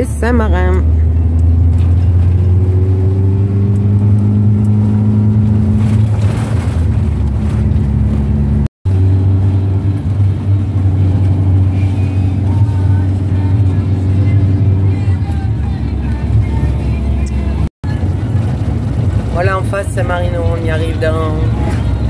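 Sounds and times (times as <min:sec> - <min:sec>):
engine drone inside cab: 0:00.0 - 0:22.0
road noise: 0:00.0 - 0:22.0.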